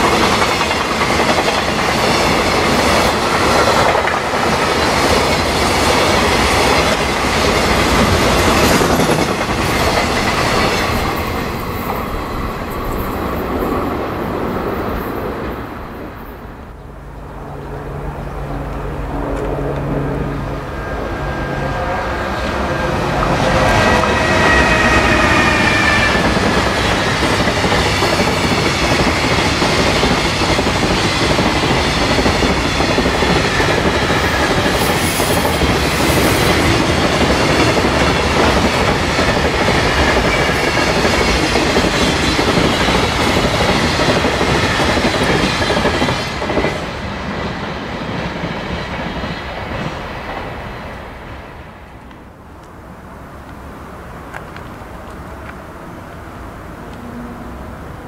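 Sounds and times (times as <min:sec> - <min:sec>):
train wheels clickety-clack: 0:00.0 - 0:15.5, 0:23.1 - 0:51.0
electric locomotive whine: 0:00.0 - 0:58.0
high squeal: 0:18.2 - 0:26.4.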